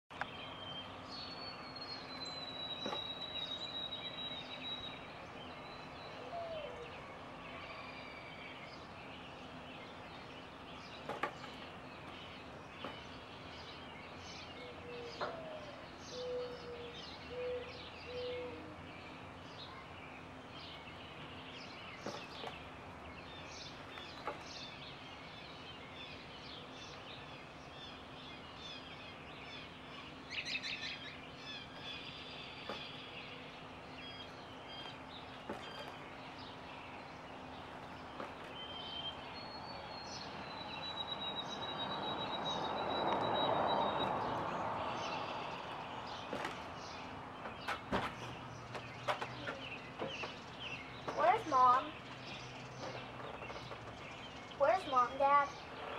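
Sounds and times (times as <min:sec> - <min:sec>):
songbirds chirping: 0:00.1 - 0:55.9.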